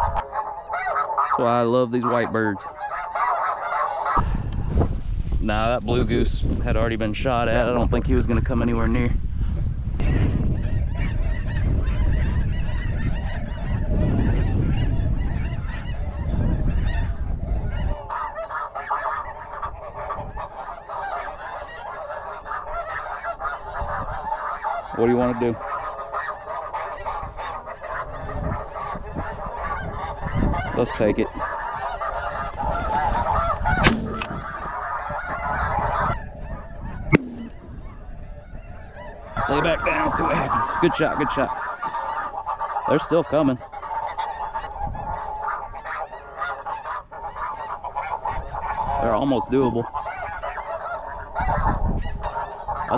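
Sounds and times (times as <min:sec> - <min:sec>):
snow geese honking: 0:00.0 - 0:04.6, 0:10.0 - 0:52.9
shotgun blasts: 0:33.8 - 0:34.4, 0:37.1 - 0:37.6.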